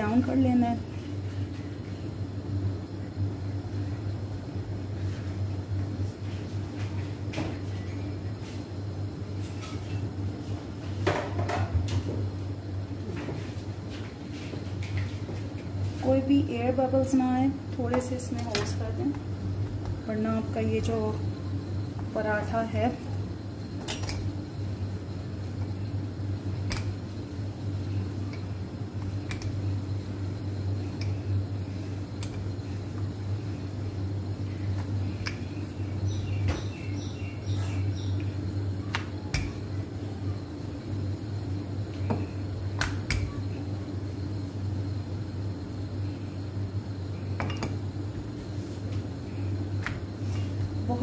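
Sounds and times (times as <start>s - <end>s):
low mechanical hum: 0.0s - 51.0s
rolling pin clicks: 26.6s - 27.0s, 38.9s - 39.6s.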